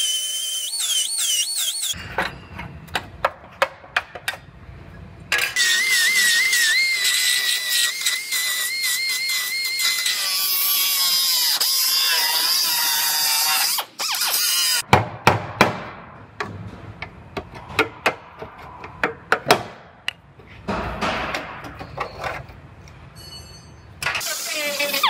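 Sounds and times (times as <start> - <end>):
pneumatic cutoff tool whining: 0.0 - 2.0
sharp metal knocks and clanks: 14.9 - 22.4.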